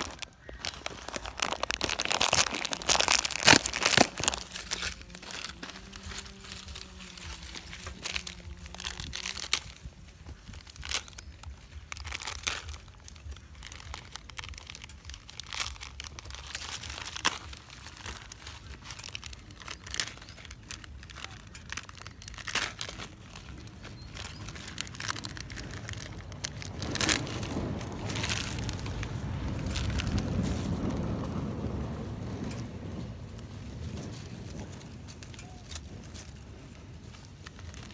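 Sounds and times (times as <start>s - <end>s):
plastic packet crinkling: 0.0s - 37.9s.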